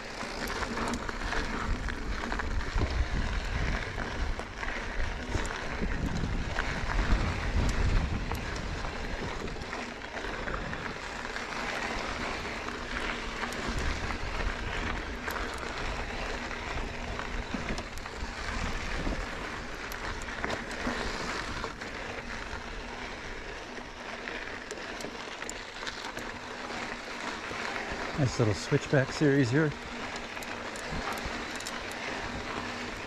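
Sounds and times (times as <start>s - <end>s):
wind rumble on microphone: 0.0s - 23.5s
bike tyres crunching over gravel: 0.0s - 33.0s
clicks of grit and stones: 0.0s - 33.0s.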